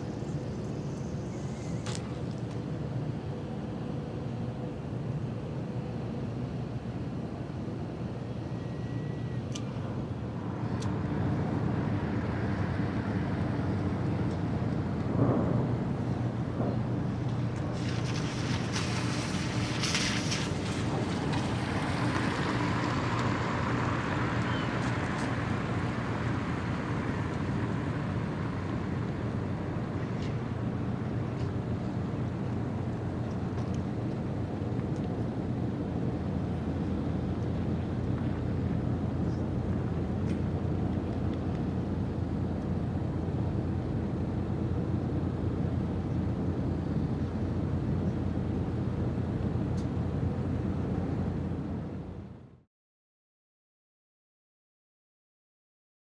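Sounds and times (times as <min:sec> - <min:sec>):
faint thin whistle: 0:01.3 - 0:01.9, 0:08.6 - 0:09.5
diesel engines rumbling: 0:08.3 - 0:52.3.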